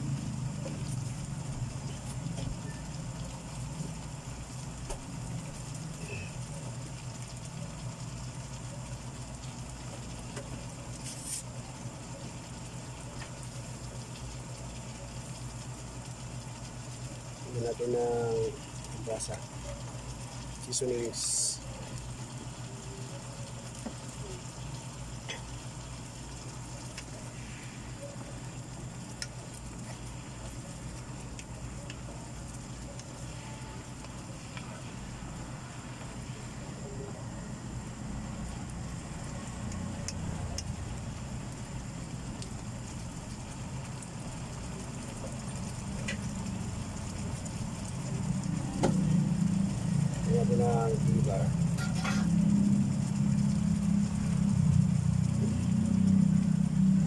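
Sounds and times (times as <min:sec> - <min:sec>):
gas stove rumble: 0:00.0 - 0:57.0
meat sizzling in a frying pan: 0:00.0 - 0:57.0
low hum: 0:21.4 - 0:57.0.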